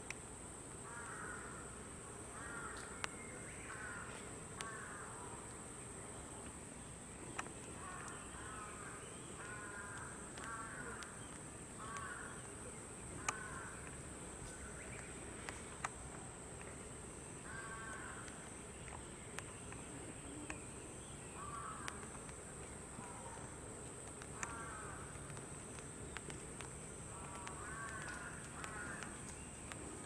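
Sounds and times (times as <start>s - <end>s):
steady high hiss: 0.0s - 30.0s
crow cawing: 0.8s - 1.6s, 2.4s - 3.0s, 3.7s - 5.1s, 7.8s - 11.1s, 11.8s - 12.4s, 13.2s - 13.9s, 17.5s - 18.3s, 21.4s - 22.0s, 24.4s - 25.1s, 27.2s - 29.2s
sharp ticks: 9.4s - 16.8s, 21.5s - 30.0s.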